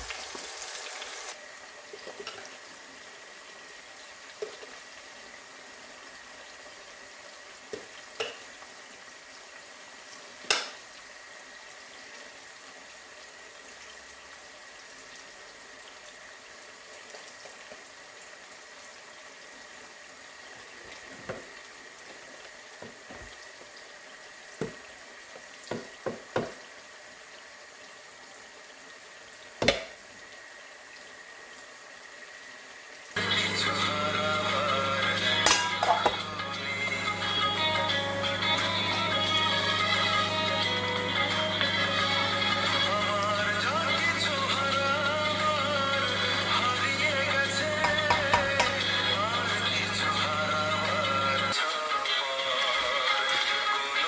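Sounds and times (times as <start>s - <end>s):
onions sizzling in hot oil: 0.0s - 51.6s
music: 33.2s - 54.0s
metal utensils clinking on pot: 35.4s - 36.2s.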